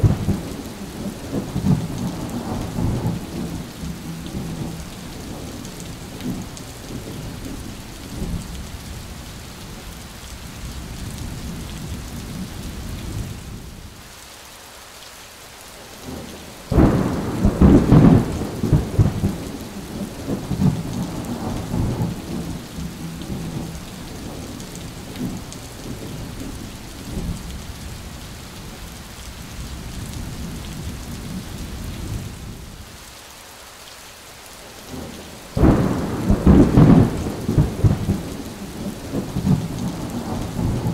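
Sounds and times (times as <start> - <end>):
thunderclap and rolling rumble: 0.0 - 9.1, 16.2 - 28.0, 34.9 - 40.9
heavy rain: 0.0 - 40.9.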